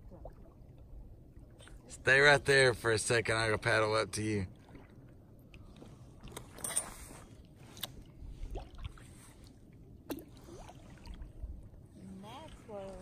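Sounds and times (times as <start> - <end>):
water lapping against hull: 0.0 - 13.0
paddle strokes splashing: 4.5 - 11.5.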